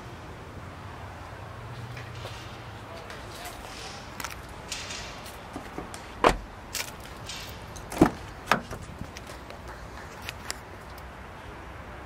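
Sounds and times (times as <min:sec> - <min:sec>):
car door thumping shut: 0:05.8 - 0:06.5, 0:07.9 - 0:08.9.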